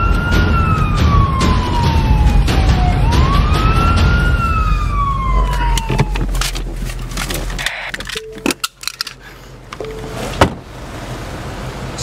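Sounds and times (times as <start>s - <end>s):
police siren wailing: 0.0s - 7.0s
moving car rumble: 0.0s - 12.0s.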